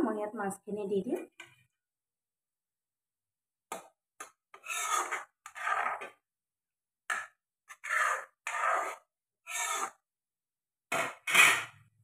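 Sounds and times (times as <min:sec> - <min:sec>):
spatula scraping a pan: 0:04.5 - 0:06.2, 0:07.1 - 0:10.0, 0:10.9 - 0:11.9.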